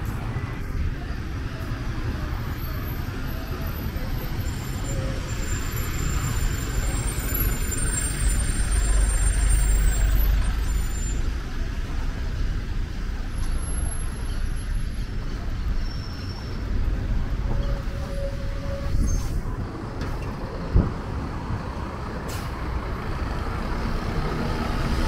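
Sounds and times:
cars and truck driving by: 0.0s - 25.0s.

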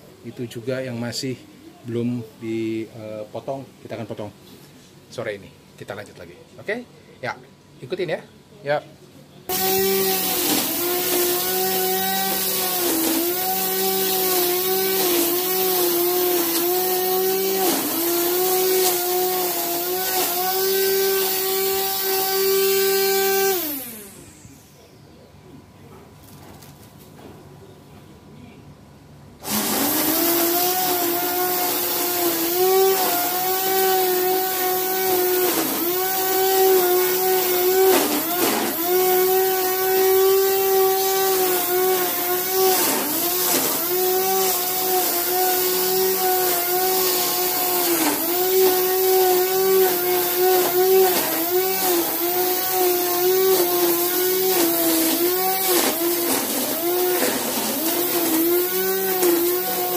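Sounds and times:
string trimmer cutting grass: 9.5s - 24.4s, 29.4s - 59.9s.

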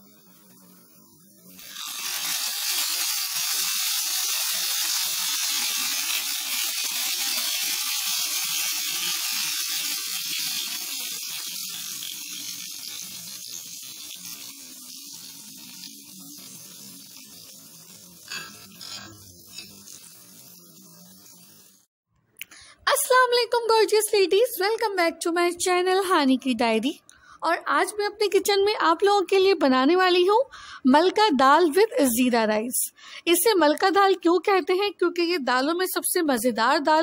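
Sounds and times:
hot oil sizzling and crackling: 1.5s - 21.9s.

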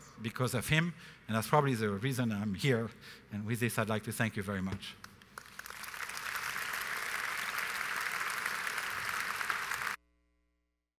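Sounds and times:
audience applauding: 5.4s - 10.0s.

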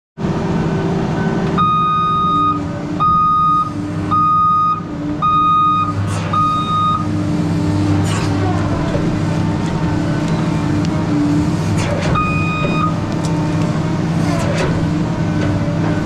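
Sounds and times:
diesel engine running: 0.2s - 16.0s
back-up alarm beeping: 1.6s - 7.1s, 12.1s - 13.0s.

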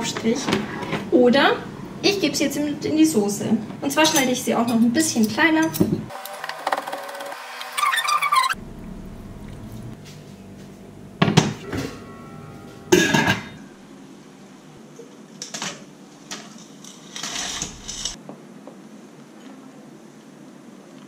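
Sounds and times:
metal cookware clanking: 11.2s - 14.0s, 16.3s - 18.2s.

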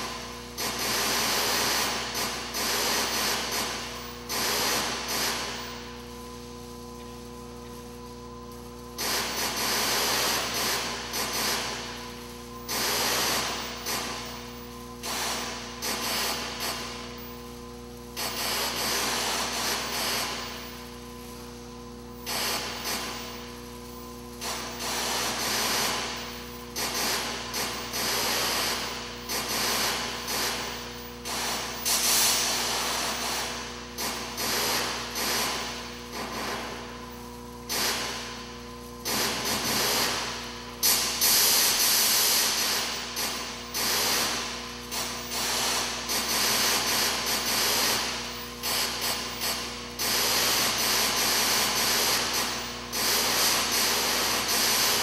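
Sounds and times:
electronic hissing bursts: 0.0s - 6.2s, 8.9s - 55.0s
steady low hum: 0.0s - 50.0s.

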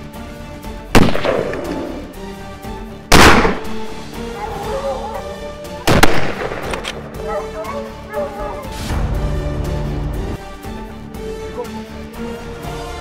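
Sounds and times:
background music: 0.0s - 13.0s
rifle shots: 1.0s - 1.8s, 3.1s - 3.9s, 5.9s - 7.0s.

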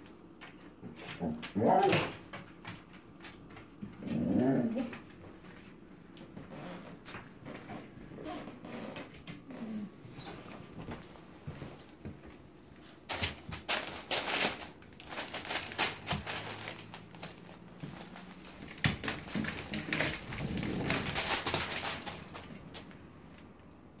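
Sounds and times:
newspaper rustling and crinkling: 10.7s - 23.6s.

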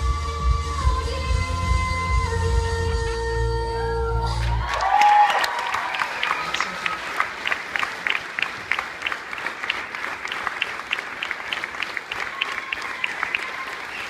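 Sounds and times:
audience applauding: 4.4s - 14.0s.

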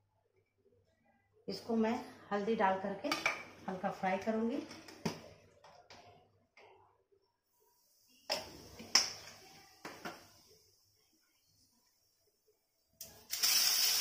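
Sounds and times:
oil sizzling: 13.1s - 14.0s.

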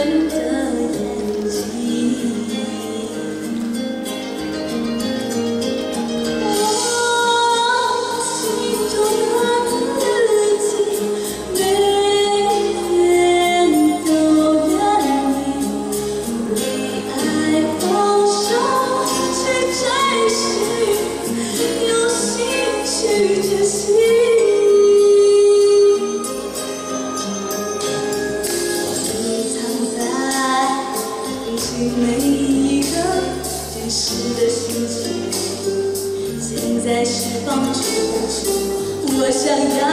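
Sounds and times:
woman singing into microphone: 0.0s - 3.8s, 6.3s - 26.7s, 28.9s - 39.9s
instrumental accompaniment: 0.0s - 39.9s.

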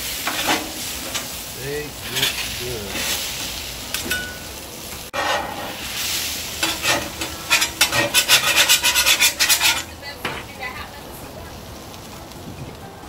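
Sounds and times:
metal spatula scraping griddle: 0.0s - 4.4s, 5.0s - 10.6s
potatoes sizzling: 0.0s - 13.0s.

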